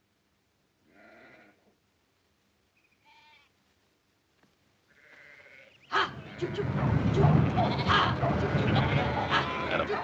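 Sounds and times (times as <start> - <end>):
sheep bleating faintly: 4.9 - 6.6, 8.8 - 10.0.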